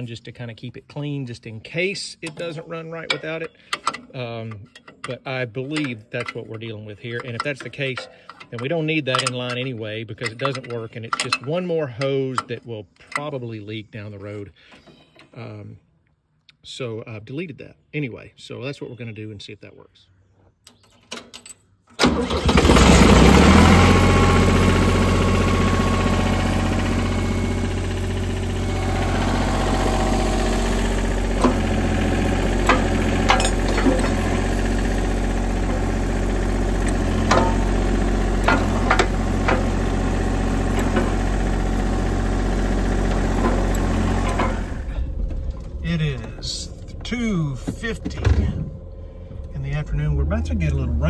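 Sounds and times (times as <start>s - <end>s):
trencher engine starting and running: 1.6s - 13.4s, 21.9s - 51.0s
sharp clicks and clanks: 2.2s - 13.5s, 30.3s - 50.8s.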